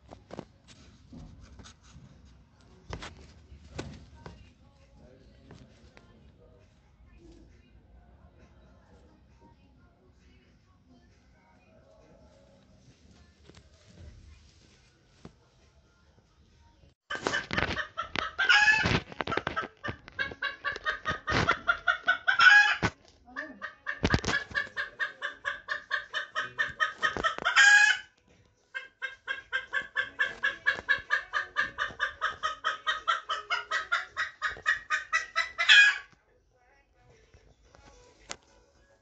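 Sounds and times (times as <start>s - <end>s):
hen clucking: 17.1s - 28.1s, 28.7s - 36.1s.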